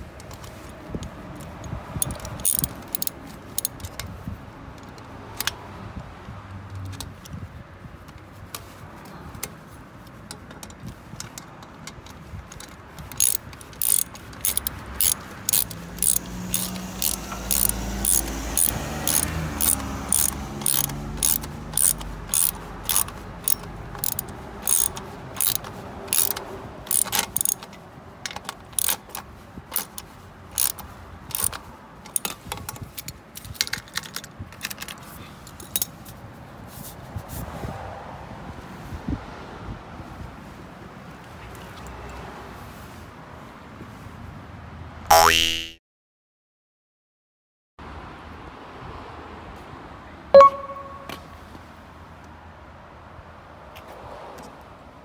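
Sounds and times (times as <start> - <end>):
hand ratchet clicking: 2.0 - 4.0, 12.6 - 27.7, 28.3 - 32.3
low vehicle hum: 13.7 - 26.1.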